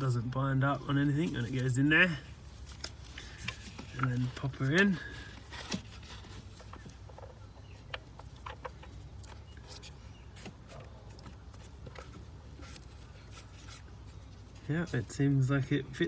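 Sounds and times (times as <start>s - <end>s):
steady low hum: 0.0s - 16.0s
faint clicks and rubbing: 2.6s - 14.8s.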